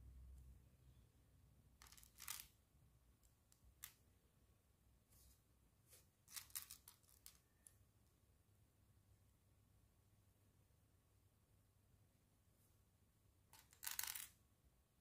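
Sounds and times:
plastic building bricks clicking: 6.3s - 7.4s, 13.6s - 14.4s.

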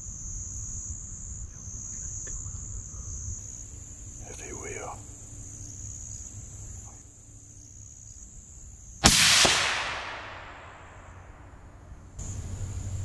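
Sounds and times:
crickets chirring: 0.0s - 13.0s
rifle shot: 9.0s - 12.1s.

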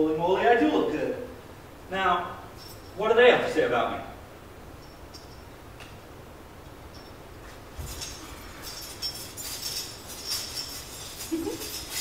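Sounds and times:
small metal pieces jingling: 7.8s - 12.0s.

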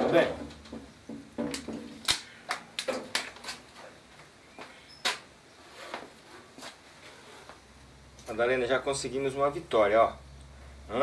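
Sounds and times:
hard objects clicking and knocking: 0.0s - 3.6s.

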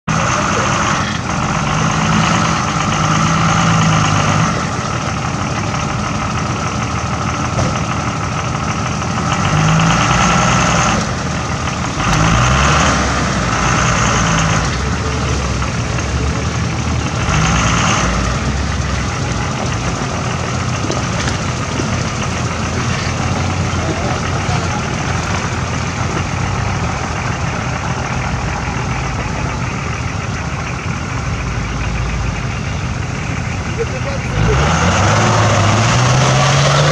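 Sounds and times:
diesel engine pulling at low revs: 0.0s - 36.9s.

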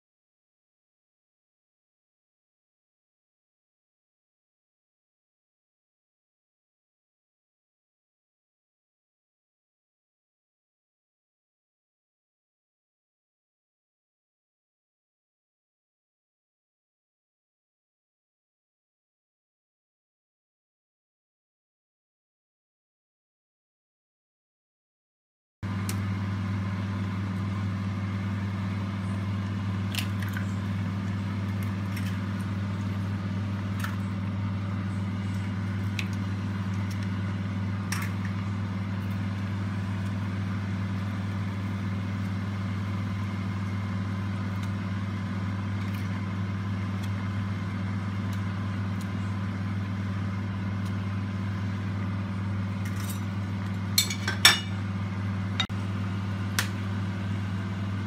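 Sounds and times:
steady low hum: 25.6s - 58.0s
soup boiling hard: 25.7s - 52.7s
toast clinking on pot: 54.0s - 54.8s.

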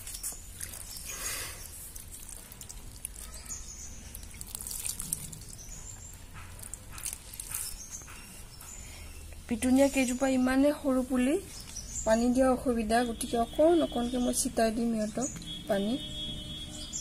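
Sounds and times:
water splashing onto soil: 0.0s - 7.7s.

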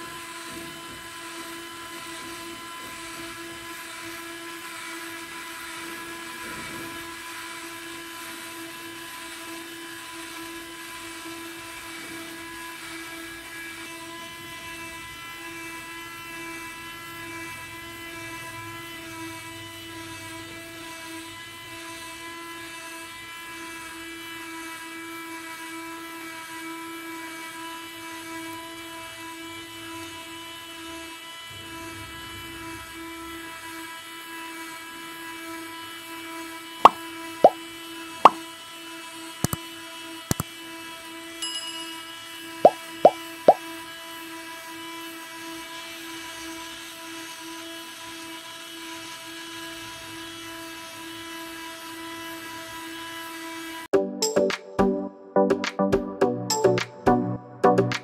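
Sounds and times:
small motor whining: 0.0s - 41.4s.

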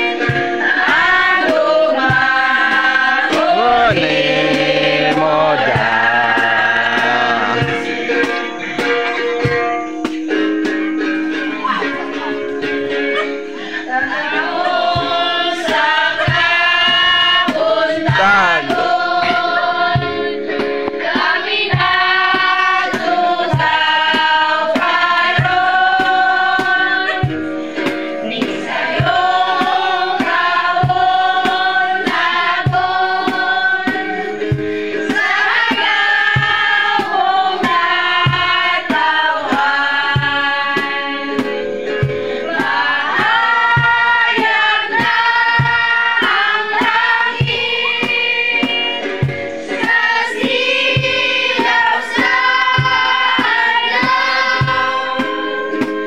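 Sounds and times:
women and children singing: 0.0s - 9.9s, 11.0s - 56.0s
steady beat: 2.8s - 10.2s, 17.4s - 19.0s.

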